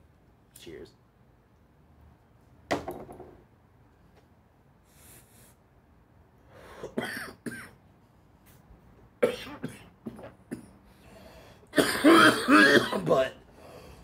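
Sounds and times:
man coughing: 6.9s - 7.7s, 9.2s - 10.7s, 11.8s - 13.3s
man clearing his throat: 11.8s - 13.2s.

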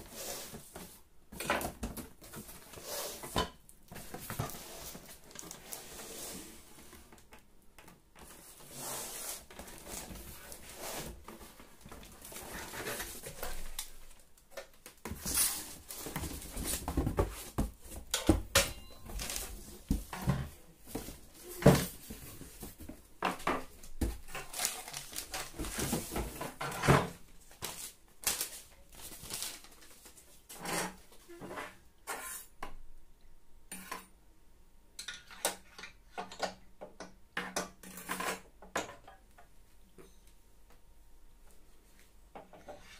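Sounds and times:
cardboard and paper rustling: 3.9s - 7.1s, 8.2s - 31.4s.

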